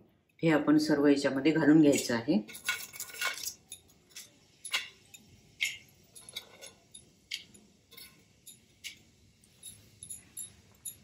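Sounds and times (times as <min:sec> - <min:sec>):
seeds popping in hot oil: 0:04.1 - 0:06.4.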